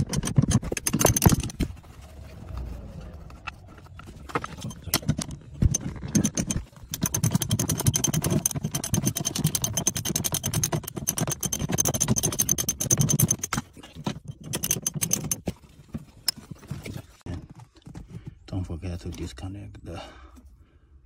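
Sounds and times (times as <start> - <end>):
socket ratchet clicking: 0.0 - 1.6, 4.7 - 13.6, 14.3 - 15.4.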